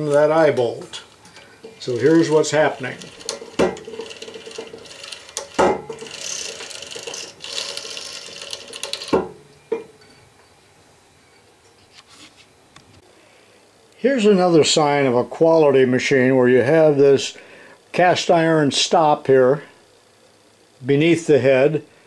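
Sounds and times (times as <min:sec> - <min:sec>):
chain rattling over pulley: 0:01.8 - 0:09.1.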